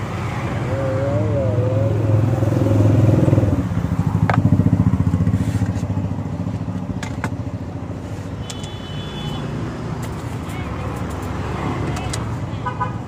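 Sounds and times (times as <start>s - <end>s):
motorcycle engine running: 1.0s - 8.0s.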